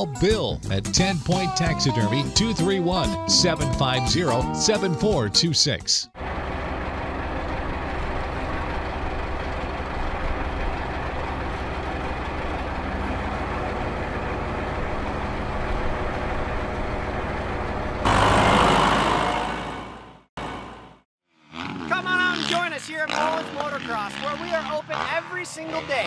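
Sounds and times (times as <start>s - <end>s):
tractor engine droning: 6.2s - 21.0s
loud rushing noise: 18.0s - 21.0s.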